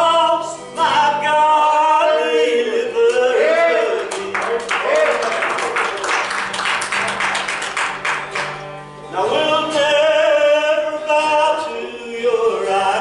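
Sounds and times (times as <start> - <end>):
man singing: 0.0 - 4.8, 9.1 - 13.0
acoustic guitar strumming: 0.0 - 13.0.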